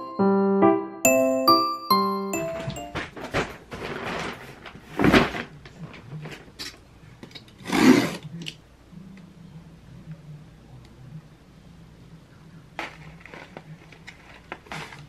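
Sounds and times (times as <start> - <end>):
box cutter on packing tape: 7.6 - 8.2.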